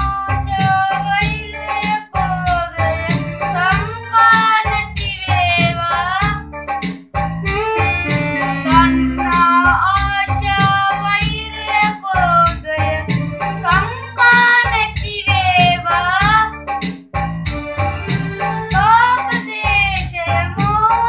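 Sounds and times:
instrumental accompaniment: 0.0s - 21.0s
children singing: 8.6s - 12.6s.

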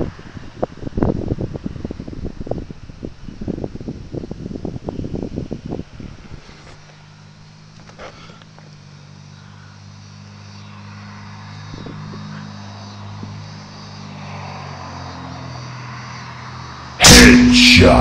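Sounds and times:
distant engine droning: 4.4s - 18.0s.

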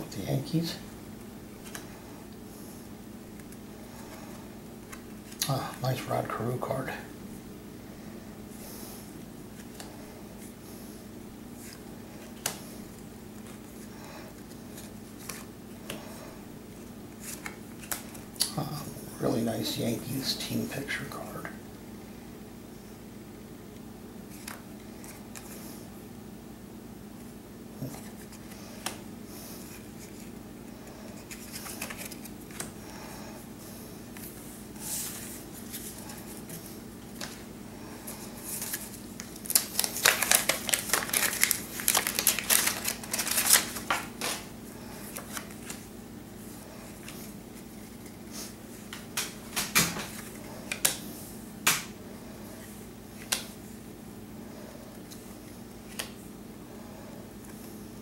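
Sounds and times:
steady low hum: 0.0s - 58.0s
paper wrapper crackling: 31.2s - 32.7s, 38.4s - 44.5s.

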